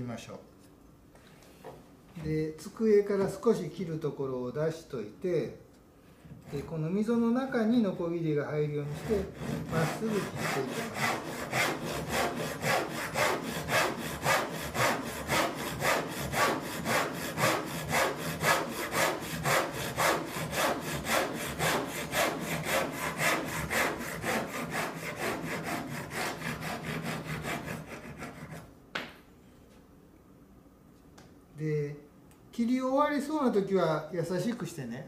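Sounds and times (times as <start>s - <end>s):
hand saw cutting wood: 6.4s - 6.9s, 8.8s - 28.7s
single knock: 28.9s - 29.2s.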